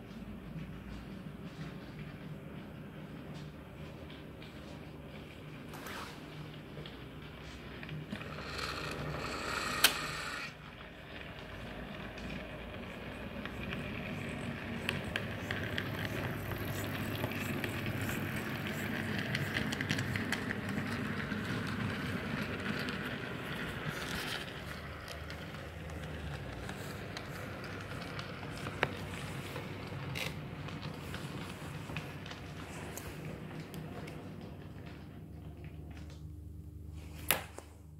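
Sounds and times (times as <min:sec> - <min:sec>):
model train whirring on rails: 0:07.9 - 0:33.9.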